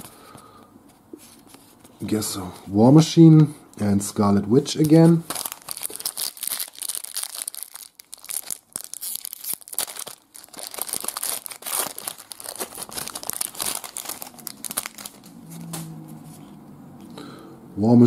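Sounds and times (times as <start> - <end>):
foil wrapper crinkling: 5.0 - 16.5.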